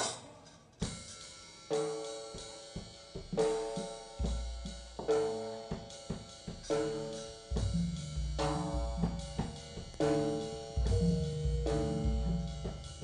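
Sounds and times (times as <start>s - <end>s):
drum and cymbal accents: 0.0s - 13.0s
acoustic guitar chords ringing: 10.0s - 13.0s
deep low hit: 10.8s - 13.0s.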